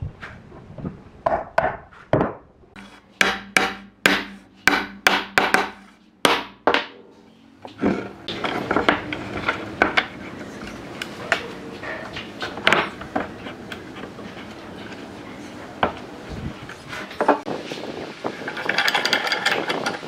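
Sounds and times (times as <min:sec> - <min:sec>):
hammer striking wooden boards: 0:01.2 - 0:07.0, 0:08.7 - 0:09.2, 0:09.8 - 0:10.1.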